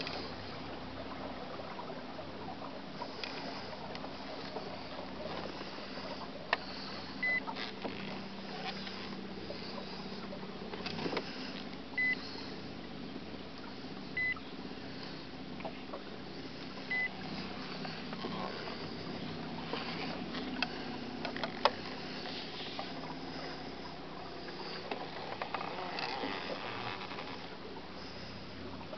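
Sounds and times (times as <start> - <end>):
short high beeps: 14.2 - 14.4.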